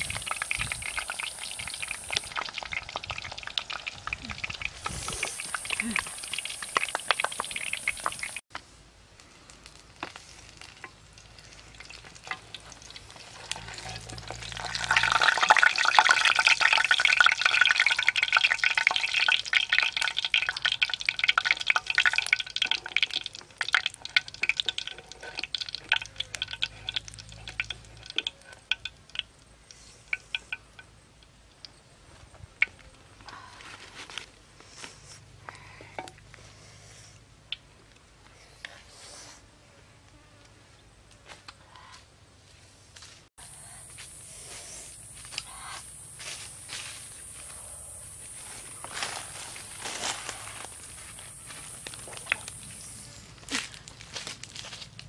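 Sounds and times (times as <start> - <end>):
frying oil sizzling and crackling: 0.0 - 8.4, 9.5 - 31.8, 48.3 - 52.9.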